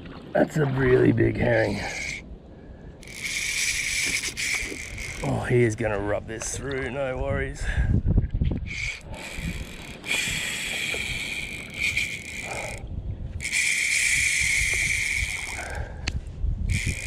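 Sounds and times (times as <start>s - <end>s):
fishing reel drag buzzing: 1.5s - 2.2s, 3.0s - 5.6s, 8.6s - 17.0s.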